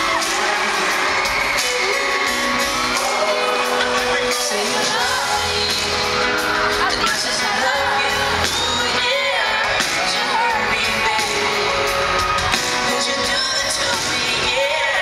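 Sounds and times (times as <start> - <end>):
fans screaming: 0.0 - 15.0
live pop band with singing: 0.0 - 15.0.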